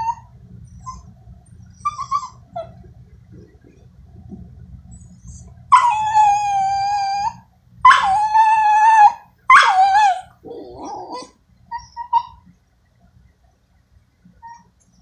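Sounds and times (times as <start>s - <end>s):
dog whining howls: 0.0s - 1.1s, 5.2s - 12.4s
dog whimpering: 1.7s - 2.8s, 4.9s - 12.4s.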